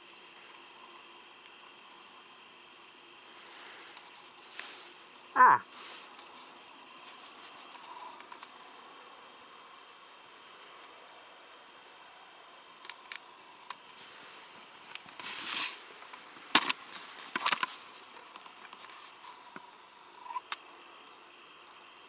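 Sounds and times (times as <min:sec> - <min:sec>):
leaves rustling: 0:00.0 - 0:20.5
camera handling clicks and knocks: 0:16.5 - 0:17.7.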